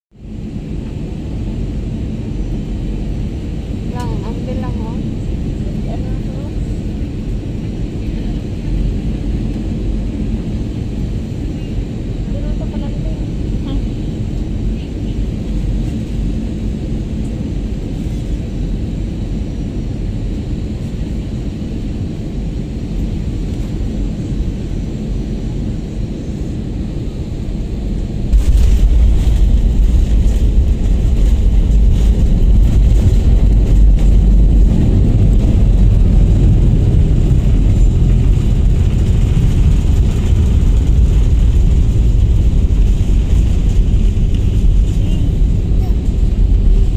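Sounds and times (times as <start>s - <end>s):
jet engines and airflow rushing: 0.1s - 46.9s
landing roll rumble: 28.3s - 46.9s.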